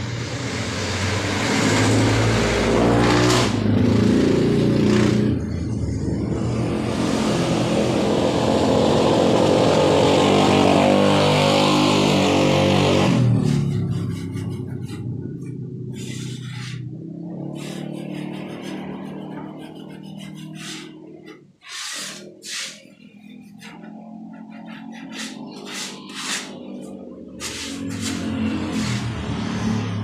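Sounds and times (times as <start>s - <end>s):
vehicle engine revving: 0.0s - 30.0s.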